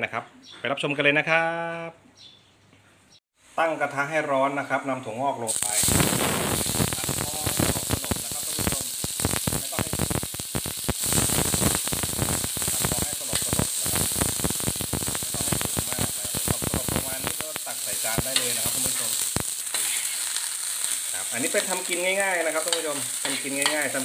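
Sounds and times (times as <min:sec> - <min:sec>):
sprouts sizzling in a hot pan: 0:05.5 - 0:24.0
spatula stirring in pan: 0:18.3 - 0:24.0.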